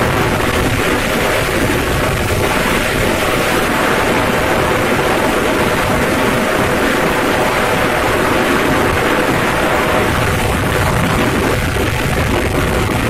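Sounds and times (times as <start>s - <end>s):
road noise: 0.0s - 13.0s
wind buffeting microphone: 0.0s - 13.0s.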